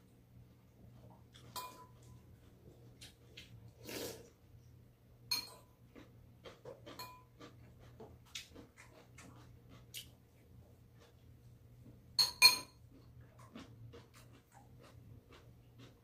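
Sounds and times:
soft eating noises: 0.0s - 16.0s
chopsticks tapping steel bowls: 1.4s - 2.1s, 5.3s - 5.7s, 12.2s - 12.8s.

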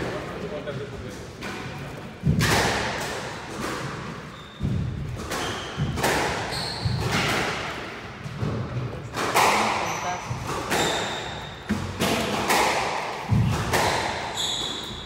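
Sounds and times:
squash ball smacking walls: 2.2s - 15.0s
sneaker squeaks on wooden floor: 4.0s - 7.3s, 9.8s - 11.7s, 14.2s - 15.0s.

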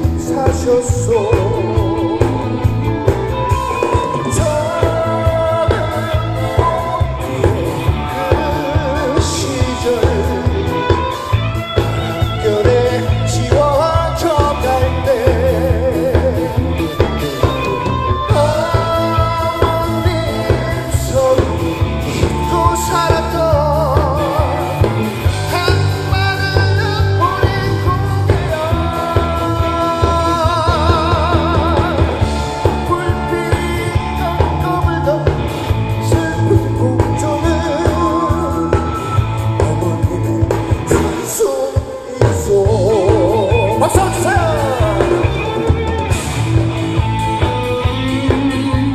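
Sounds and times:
bass guitar: 0.0s - 48.9s
drum kit steady beat: 0.0s - 48.9s
electric guitars: 0.0s - 48.9s
male singer with vibrato: 0.0s - 48.9s.

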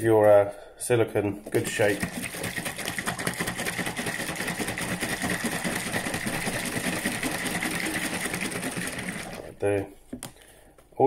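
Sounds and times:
plastic bottle shaken sloshing: 1.5s - 9.7s.

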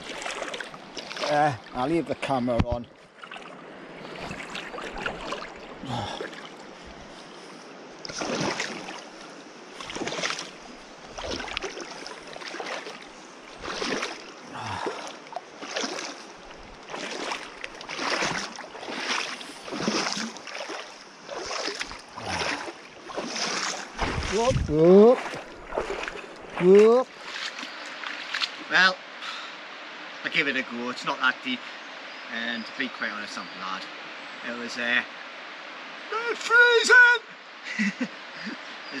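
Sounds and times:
water splashing from wading: 0.0s - 1.9s, 2.6s - 28.8s
river flowing: 0.0s - 32.3s, 32.9s - 39.0s.

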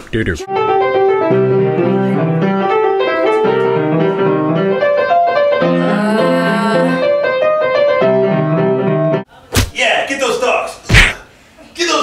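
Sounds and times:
piano playing a tune: 0.4s - 9.3s.

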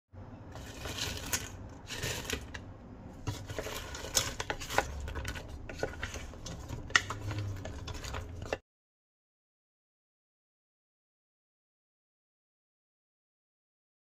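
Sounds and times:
wooden spoon scraping metal pot: 0.5s - 8.6s.

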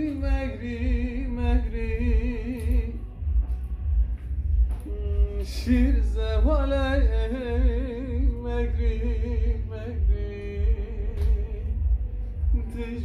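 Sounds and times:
low rumble: 0.0s - 13.0s
man singing unaccompanied: 4.9s - 11.9s.

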